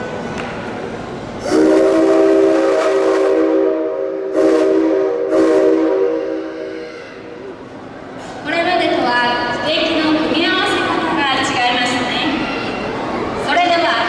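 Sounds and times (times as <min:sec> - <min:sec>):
steam locomotive whistle chord: 0:01.4 - 0:06.9.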